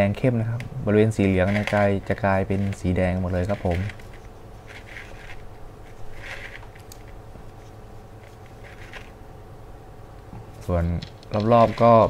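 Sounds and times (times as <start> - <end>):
faint steady hum: 0.0 - 12.0
hands rustling potting mix: 10.4 - 12.0.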